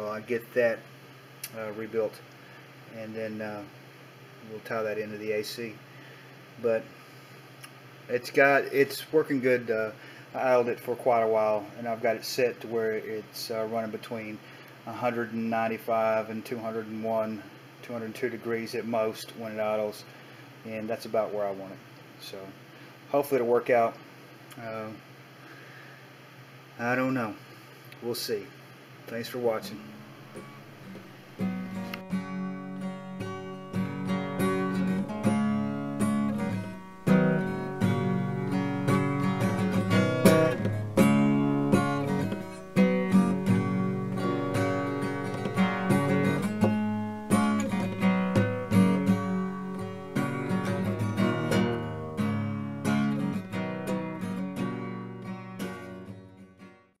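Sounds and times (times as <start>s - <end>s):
acoustic guitar music: 6.6s - 19.9s, 29.1s - 57.0s.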